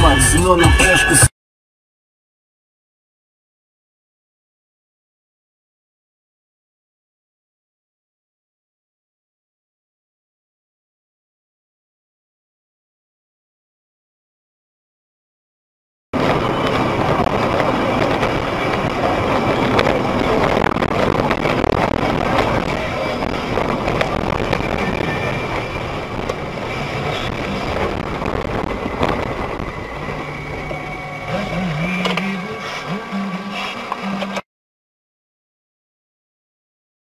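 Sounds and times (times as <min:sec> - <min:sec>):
car road noise rushing: 0:16.2 - 0:34.4
low wavering tone: 0:22.7 - 0:34.4.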